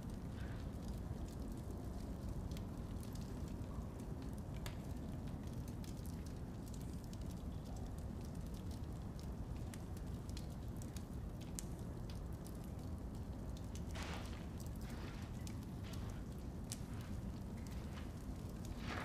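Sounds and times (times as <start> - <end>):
low room rumble: 0.0 - 19.0
torches crackling: 8.2 - 19.0.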